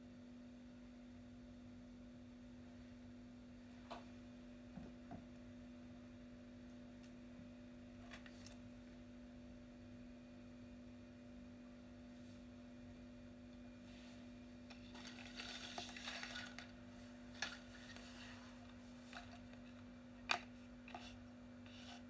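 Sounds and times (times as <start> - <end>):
faint low hum: 0.0 - 22.0
soft crackling and hissing: 13.6 - 22.0.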